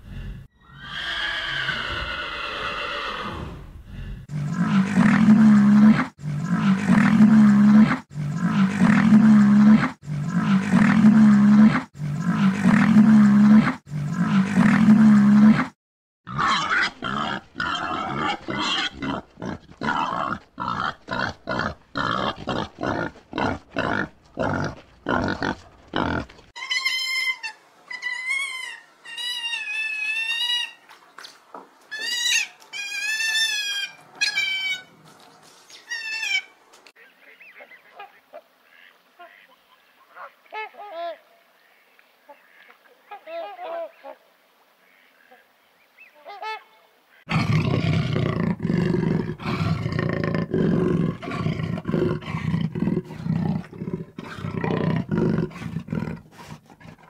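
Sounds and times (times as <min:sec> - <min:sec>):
high pitched animal calls: 0:00.6 - 0:03.6.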